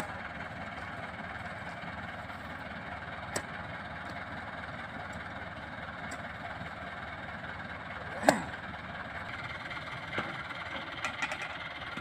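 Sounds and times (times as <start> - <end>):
tractor diesel engine running: 0.0 - 12.0
spade striking ground: 8.2 - 8.5.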